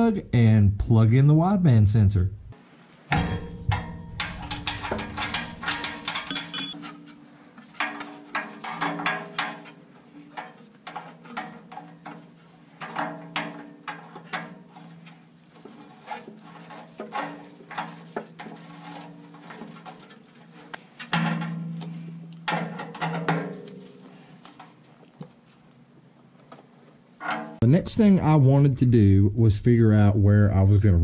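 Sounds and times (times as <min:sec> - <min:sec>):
metal tools clinking and scraping: 0:03.7 - 0:24.7
steady low hum: 0:27.6 - 0:31.0.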